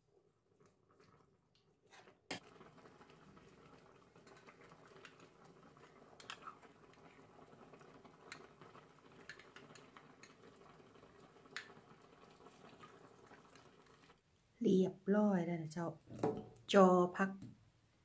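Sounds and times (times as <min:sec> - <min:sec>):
pot bubbling: 0:00.0 - 0:14.3.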